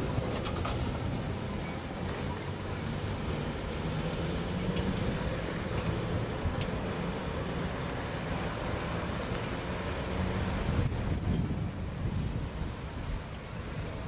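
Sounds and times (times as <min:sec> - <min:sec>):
road traffic rumble: 0:00.0 - 0:14.0
trolleybus moving: 0:00.0 - 0:14.0
short high squeaks: 0:02.2 - 0:02.6, 0:04.0 - 0:04.6, 0:05.7 - 0:06.2, 0:08.3 - 0:10.6.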